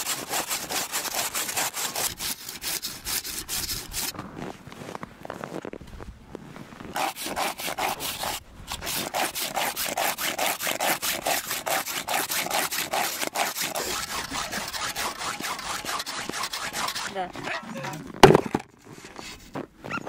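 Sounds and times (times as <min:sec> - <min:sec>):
hand saw cutting frozen fish: 0:00.0 - 0:04.1, 0:06.9 - 0:17.6.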